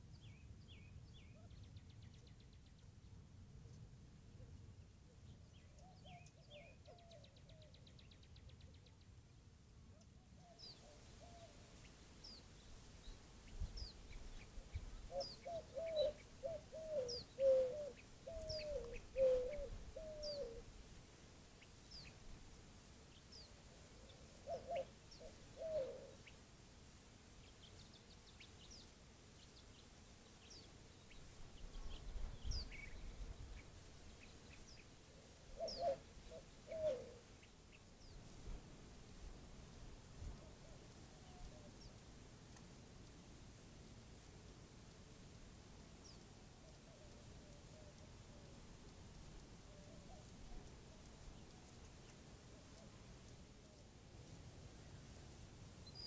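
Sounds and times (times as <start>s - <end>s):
small bird chirping: 10.5s - 20.7s
dove cooing: 10.8s - 11.6s, 14.6s - 20.7s, 23.8s - 26.3s, 35.1s - 37.4s.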